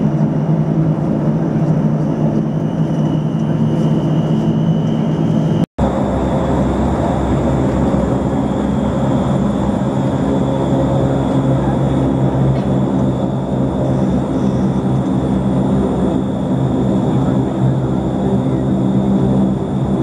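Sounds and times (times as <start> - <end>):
turboprop engine drone with whine: 0.0 - 20.0.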